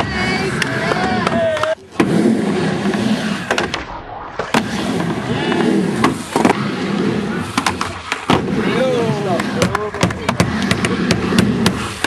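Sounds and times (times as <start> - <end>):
skateboard wheels rolling: 0.0 - 12.0
skateboard clacking on ramp: 9.3 - 12.0.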